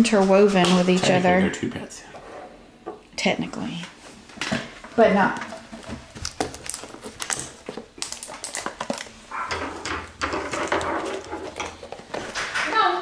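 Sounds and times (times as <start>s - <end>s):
cardboard packaging rustling: 5.2s - 9.5s, 10.4s - 12.6s.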